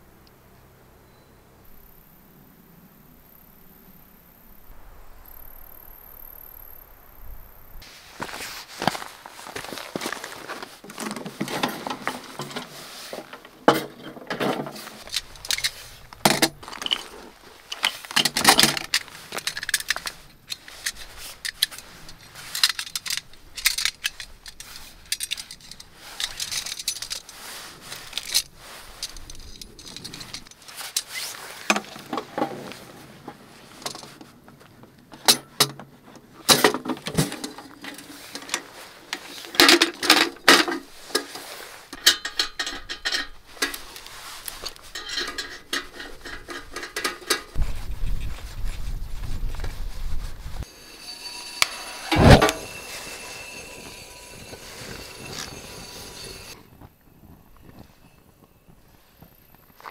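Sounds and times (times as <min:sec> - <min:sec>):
metal parts clinking and rattling: 0:09.5 - 0:32.3, 0:36.4 - 0:47.6, 0:51.0 - 0:56.6.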